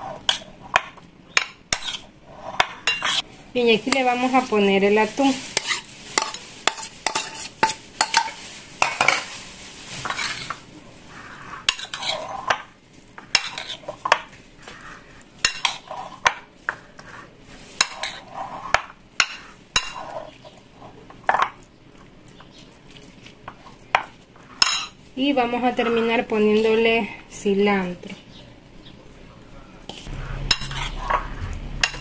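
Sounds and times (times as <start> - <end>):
soft swishing of food: 21.9 - 24.4.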